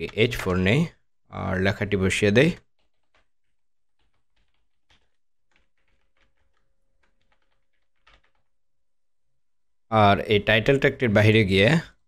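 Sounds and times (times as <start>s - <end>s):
keyboard typing: 2.3s - 8.7s.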